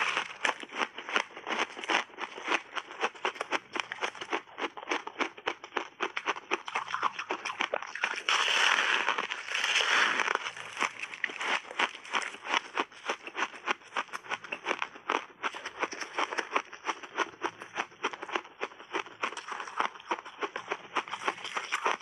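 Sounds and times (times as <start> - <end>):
crunchy ice chewing: 0.0 - 22.0
loud crunch biting ice: 0.0 - 22.0.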